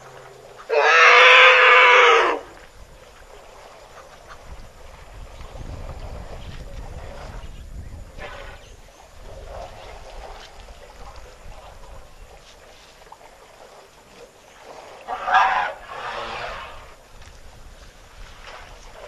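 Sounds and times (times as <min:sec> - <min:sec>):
water sloshing and splashing: 0:00.0 - 0:00.7, 0:02.4 - 0:19.0
wind rumble on microphone: 0:02.4 - 0:13.1, 0:15.6 - 0:19.0.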